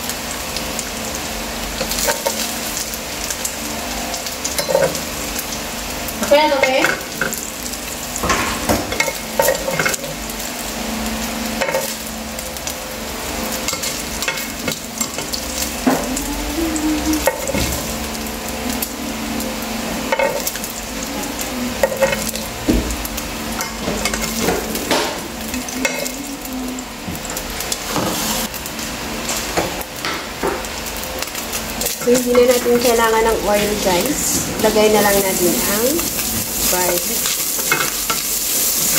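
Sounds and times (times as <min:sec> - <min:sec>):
chicken sizzling in butter: 0:00.0 - 0:38.9.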